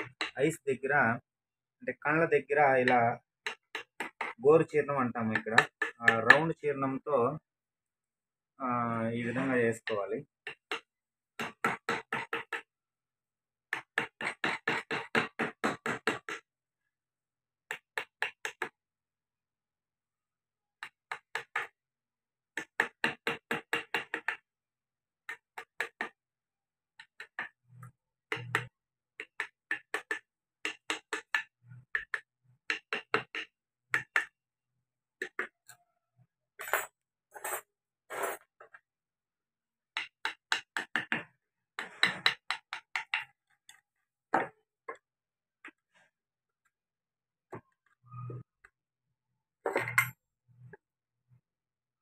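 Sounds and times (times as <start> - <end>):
mallet striking chisel into wood: 5.3 - 6.5.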